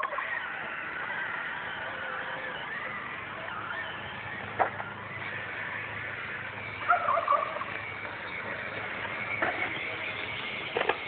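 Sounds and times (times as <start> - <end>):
chicken calling: 6.8 - 7.8.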